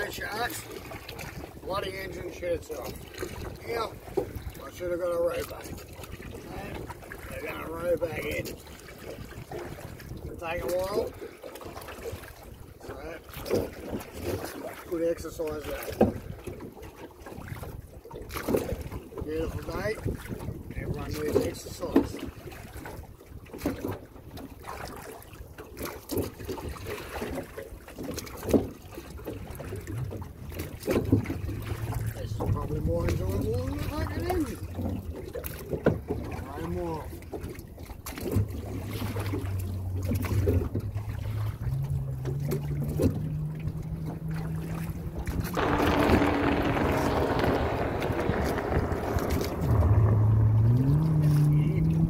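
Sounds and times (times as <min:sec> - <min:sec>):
oars creaking in rowlocks: 0:00.0 - 0:52.0
water trickling off oar blades: 0:00.0 - 0:52.0
wind on microphone: 0:17.4 - 0:23.1, 0:42.8 - 0:52.0.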